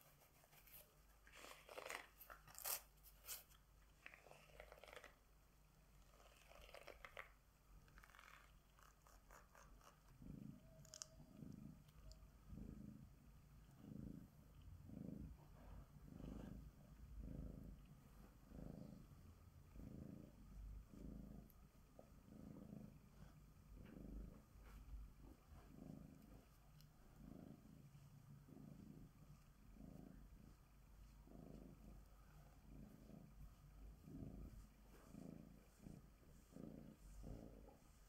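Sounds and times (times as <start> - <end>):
cat purring: 0.0 - 38.0.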